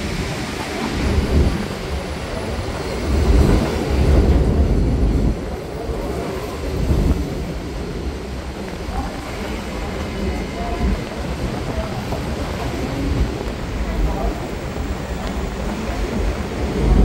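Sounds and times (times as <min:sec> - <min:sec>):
subway train rumbling past: 0:00.0 - 0:17.0.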